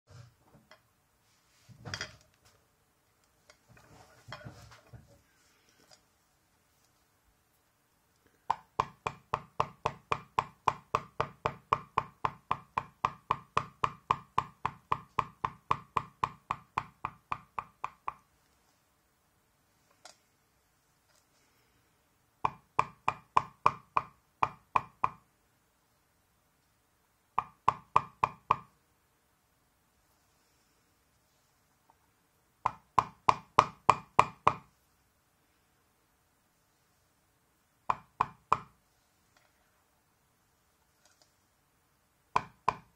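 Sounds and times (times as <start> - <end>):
maul tapping leather stamp: 8.5 - 18.2, 32.7 - 34.7, 37.9 - 38.7, 42.4 - 42.9.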